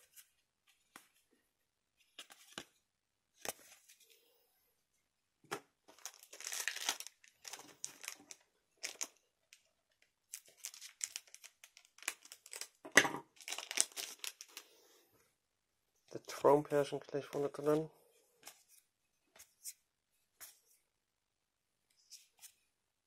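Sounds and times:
foil wrapper crinkling and tearing: 6.0 - 9.1, 10.3 - 12.8, 13.4 - 14.6.

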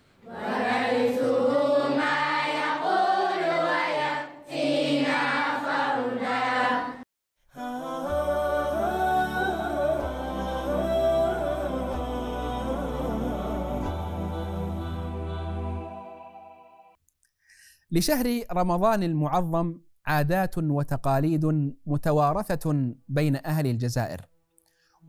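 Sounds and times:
voices chanting in unison: 0.2 - 7.0, 7.6 - 16.5.

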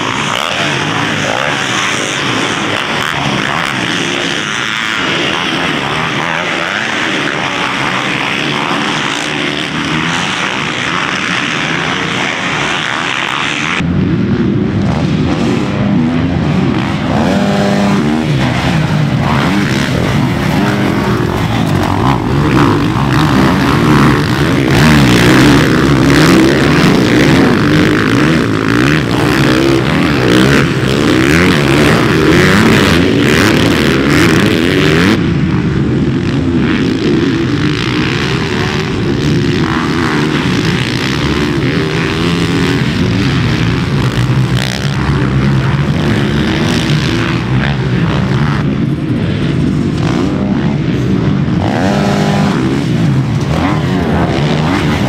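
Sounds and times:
dirt bike engines revving: 0.0 - 55.0.

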